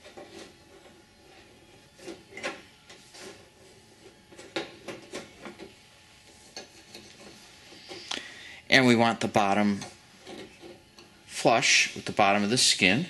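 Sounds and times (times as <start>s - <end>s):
sheet metal clicks and scrapes: 9.7s - 10.8s.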